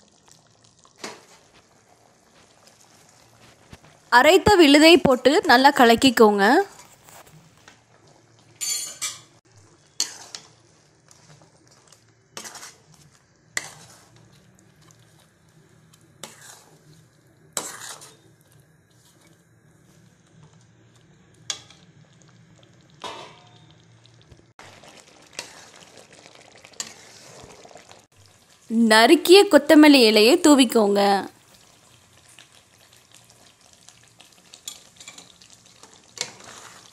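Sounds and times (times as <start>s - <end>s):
metal ladle scraping pan: 8.6s - 9.3s, 9.9s - 10.6s, 12.4s - 12.9s, 13.6s - 14.2s, 16.2s - 16.8s, 17.6s - 18.2s, 25.3s - 25.9s, 26.8s - 27.7s, 36.2s - 36.9s.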